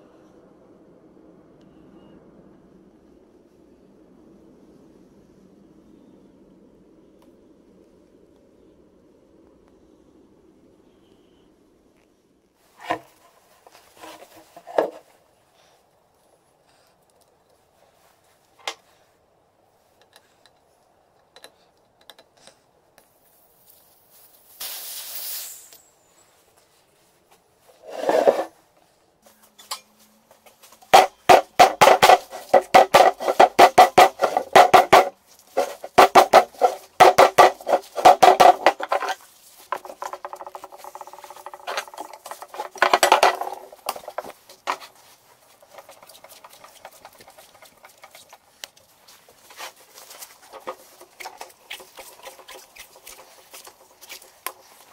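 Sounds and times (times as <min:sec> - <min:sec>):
air hissing from tyre valve: 0:24.5 - 0:26.3.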